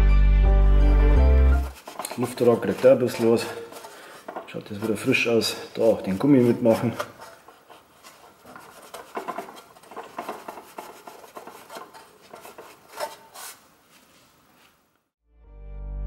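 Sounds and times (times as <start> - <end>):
rag scrubbing fan cover: 1.6 - 14.8
rag catching on fan blades: 1.7 - 13.6.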